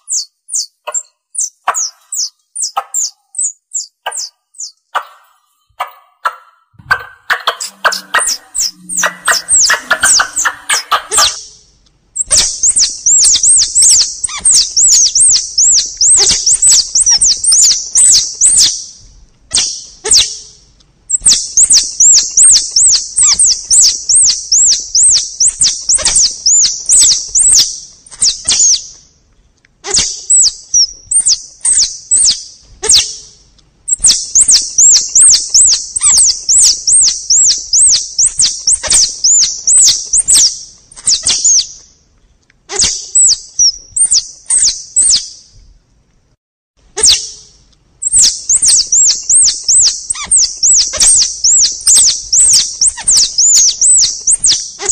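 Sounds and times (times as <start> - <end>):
high sharp chirps: 0.0 - 5.1, 6.8 - 20.5, 21.1 - 28.9, 33.9 - 41.8, 47.0 - 54.9.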